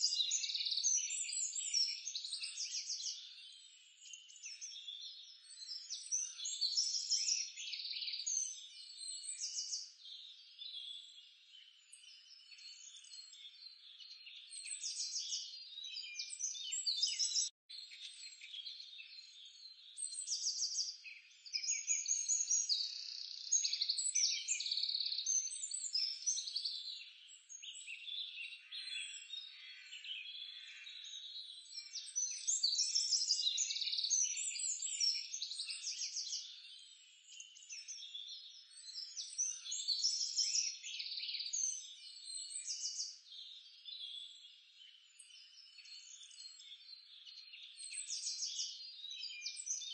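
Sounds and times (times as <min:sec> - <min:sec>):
chorus of chirping and trilling calls: 0:00.0 - 0:49.9.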